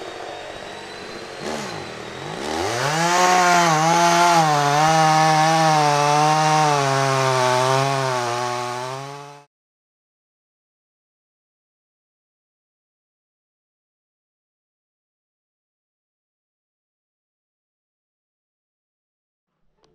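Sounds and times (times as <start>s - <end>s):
chainsaw revving: 0.0s - 9.5s.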